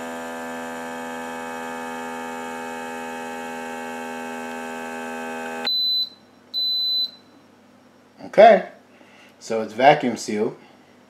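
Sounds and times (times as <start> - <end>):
vacuum pump humming: 0.0 - 6.0.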